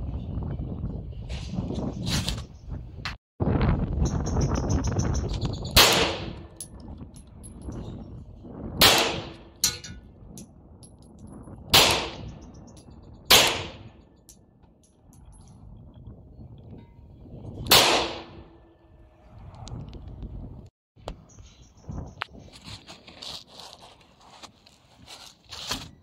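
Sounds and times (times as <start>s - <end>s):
pistol shots: 5.8s - 6.5s, 8.8s - 9.5s, 11.7s - 12.3s, 13.3s - 13.9s, 17.7s - 18.5s.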